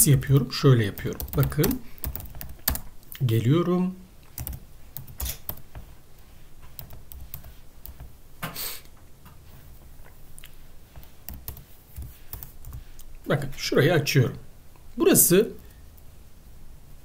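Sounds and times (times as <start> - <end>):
computer keyboard keystrokes: 1.0 - 2.9, 4.4 - 5.6, 6.8 - 8.1
short hiss: 8.4 - 8.9.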